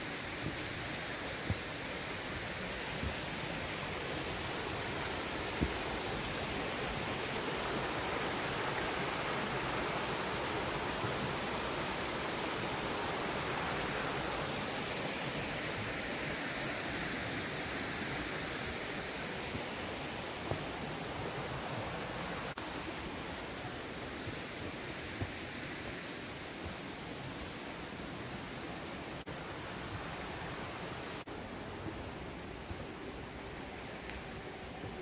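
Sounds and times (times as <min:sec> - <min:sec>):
stream water rushing down falls: 0:00.0 - 0:35.0.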